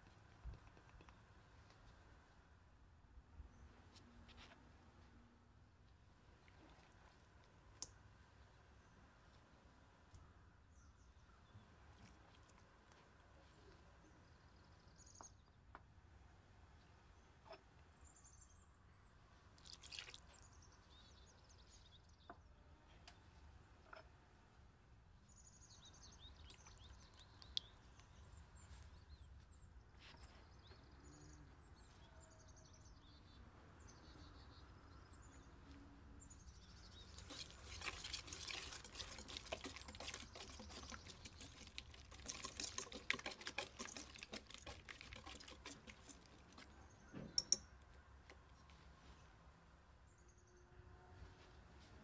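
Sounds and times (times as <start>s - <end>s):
juice poured into metal bowl: 19.6s - 20.4s, 36.9s - 46.8s
whisk beating in metal bowl: 37.2s - 46.7s.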